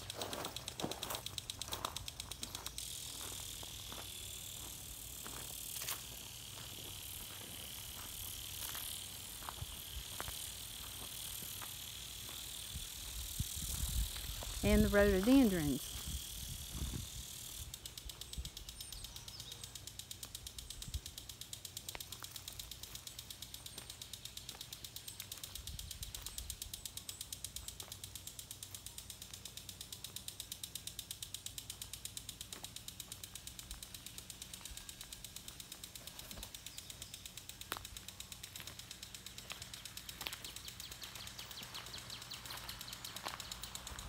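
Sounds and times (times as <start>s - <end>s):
fast even ticking: 0.0s - 44.0s.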